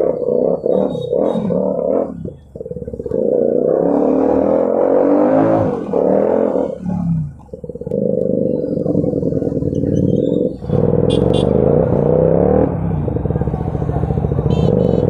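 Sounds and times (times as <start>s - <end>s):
motorcycle engine revving: 0.0s - 15.0s
short horn beeps: 11.1s - 11.5s.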